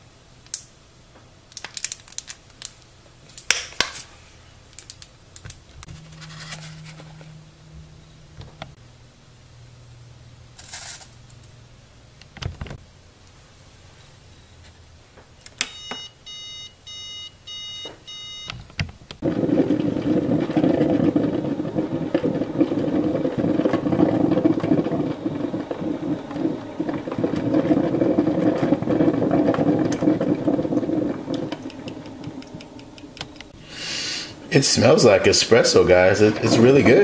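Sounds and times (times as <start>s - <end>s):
coffee maker beeping: 15.8s - 18.5s, 19.2s - 33.5s, 34.8s - 37.0s
coffee maker gurgling hiss: 19.2s - 32.9s, 33.6s - 37.0s.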